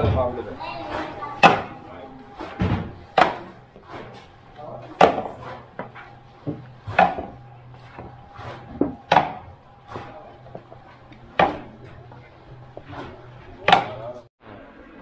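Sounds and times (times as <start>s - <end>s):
low machine hum: 0.0s - 15.0s
sharp knocks: 0.9s - 1.8s, 2.4s - 4.3s, 4.9s - 11.9s, 12.8s - 14.0s.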